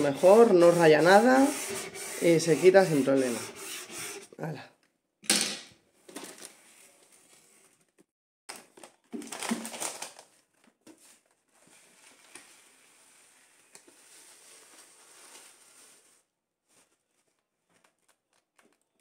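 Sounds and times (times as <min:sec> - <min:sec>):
cloth wiping shelf: 0:00.0 - 0:04.3
bag crinkling: 0:08.5 - 0:10.5.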